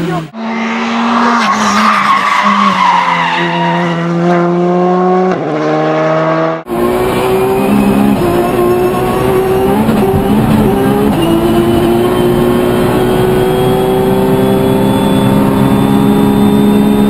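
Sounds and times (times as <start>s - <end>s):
rally car engine from cockpit: 0.0s - 17.0s
rally car engines at high revs: 0.0s - 17.0s
tyre squeal: 0.6s - 4.1s, 7.2s - 14.0s.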